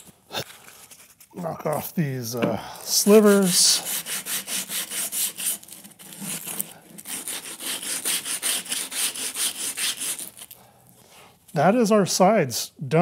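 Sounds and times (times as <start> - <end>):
rubbing strokes on wood: 2.9 - 11.2.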